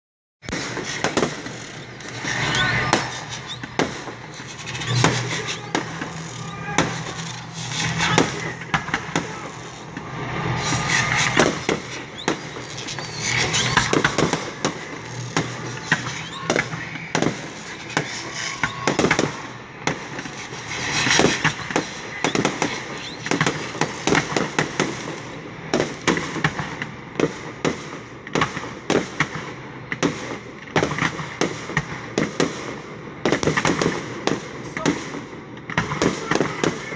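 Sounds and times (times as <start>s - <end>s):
fireworks bursting: 0.4s - 36.9s.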